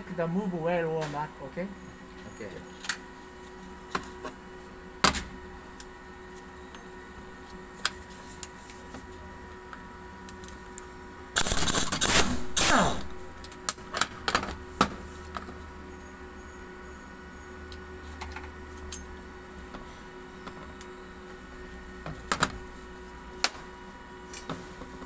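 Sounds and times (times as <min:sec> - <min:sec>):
pneumatic impact wrench hammering: 0:11.4 - 0:13.2.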